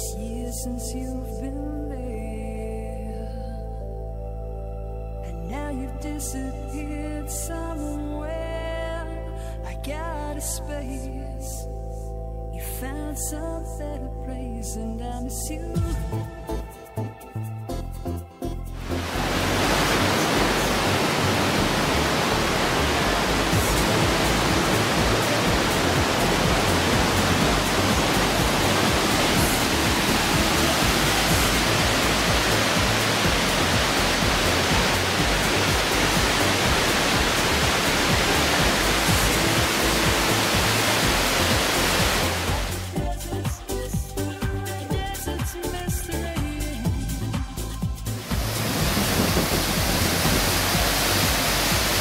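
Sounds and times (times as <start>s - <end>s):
whitewater roaring: 18.8s - 42.9s, 48.2s - 52.0s.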